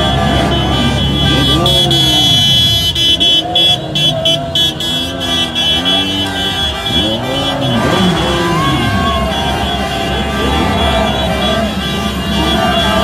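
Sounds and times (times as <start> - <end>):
car horns beeping: 0.0 - 13.0
crowd shouting: 0.0 - 13.0
engines revving: 0.0 - 13.0.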